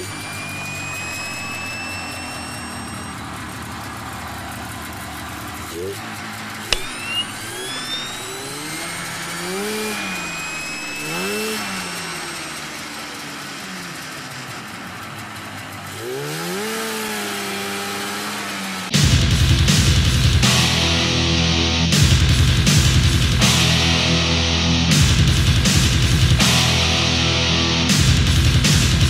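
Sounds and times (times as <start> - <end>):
engine revving: 0.0 - 29.0
loud music: 19.0 - 29.0.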